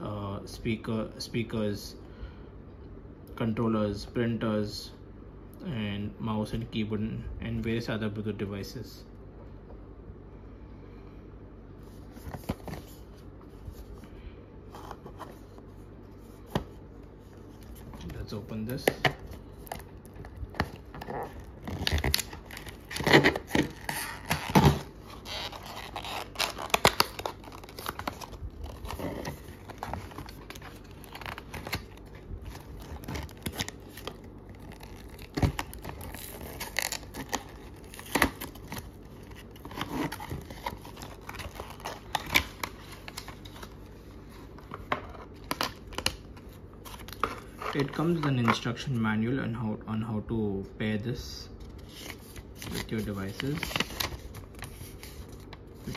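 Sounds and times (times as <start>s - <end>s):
paper and plastic crinkling: 17.3s - 48.7s, 51.6s - 55.9s
cardboard box torn open: 20.8s - 30.4s.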